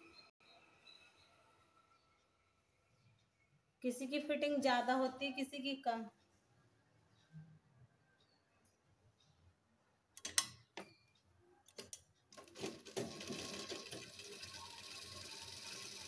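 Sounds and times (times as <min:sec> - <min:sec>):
sewing machine clicks and knocks: 0:11.7 - 0:16.0
sewing machine stitching: 0:11.8 - 0:16.0.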